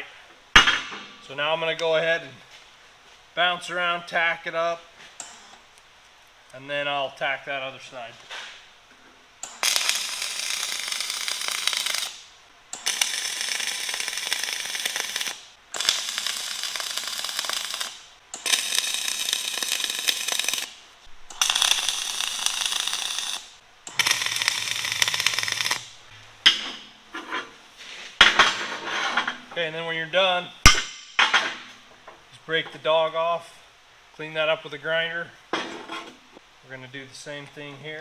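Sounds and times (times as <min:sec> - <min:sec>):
welding arc crackling: 0:09.4 - 0:26.0.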